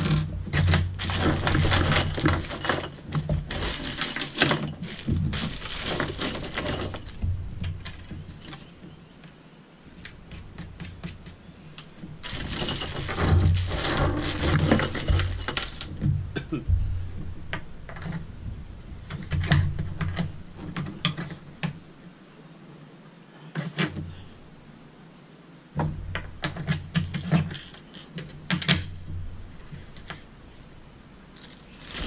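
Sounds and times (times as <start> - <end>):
metal hardware clinking: 0.0 - 8.7, 11.8 - 16.0, 26.1 - 29.0, 31.4 - 32.0
plastic bag crinkling: 0.9 - 7.2, 12.2 - 15.9, 31.4 - 32.0.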